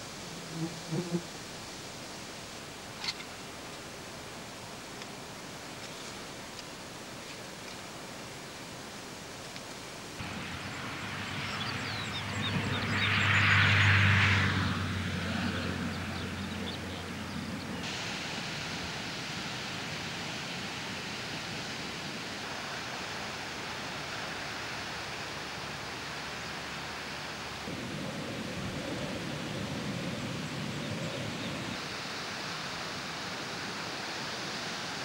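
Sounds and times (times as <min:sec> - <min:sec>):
steady hiss: 0:00.0 - 0:13.3, 0:17.1 - 0:35.0.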